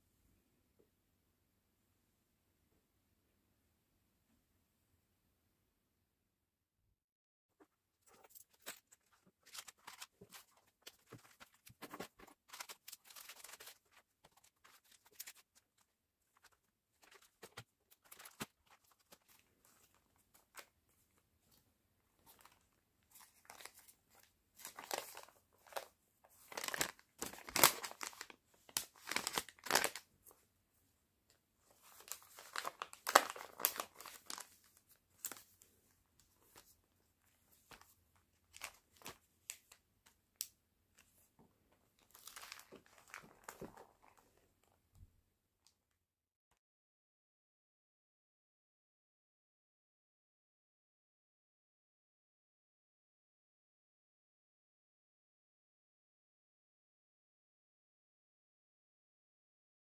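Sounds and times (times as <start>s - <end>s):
paper pages rustling and crinkling: 8.0s - 21.6s, 22.2s - 30.0s, 31.7s - 39.8s, 42.0s - 44.6s.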